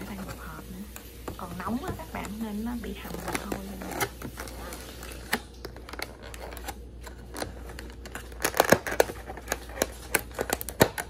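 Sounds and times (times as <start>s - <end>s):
plastic container clicks and crackles: 0.1s - 11.0s
plastic lid snapping: 3.1s - 11.0s.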